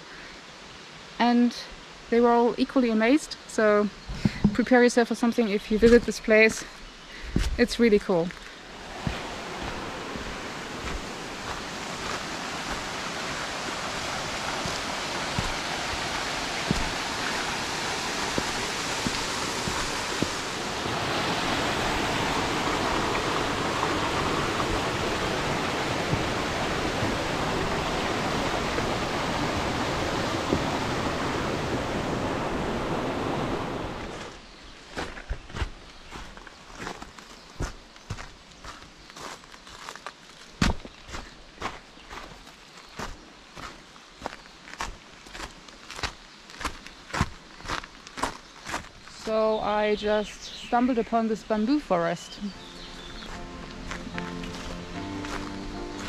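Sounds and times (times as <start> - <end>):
footsteps on trail: 5.8 - 29.2, 34.0 - 49.8, 52.3 - 56.0
stream rushing over rocks: 8.6 - 34.4, 52.4 - 56.0.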